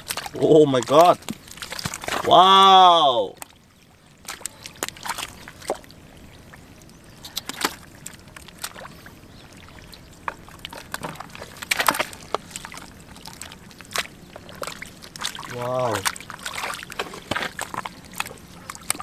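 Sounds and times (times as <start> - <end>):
hands splashing in shallow water: 4.2 - 5.9, 7.2 - 9.0, 10.6 - 19.0.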